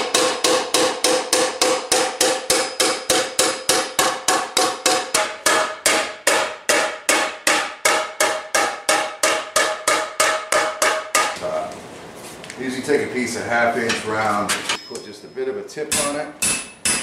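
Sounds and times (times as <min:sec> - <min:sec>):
hammer ringing on steel pan: 0:00.0 - 0:11.4.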